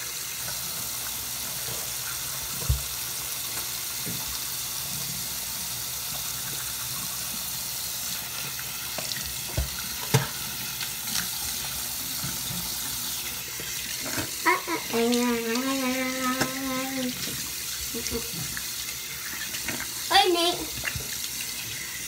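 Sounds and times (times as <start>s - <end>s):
tap running into sink: 1.6s - 5.2s, 8.4s - 21.8s.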